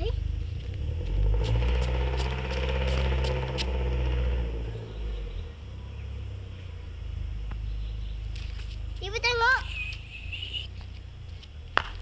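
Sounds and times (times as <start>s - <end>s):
car engine running: 0.0s - 12.0s.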